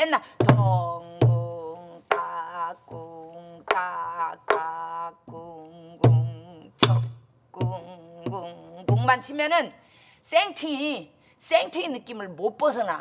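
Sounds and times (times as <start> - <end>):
woman singing held notes: 7.6 - 9.7.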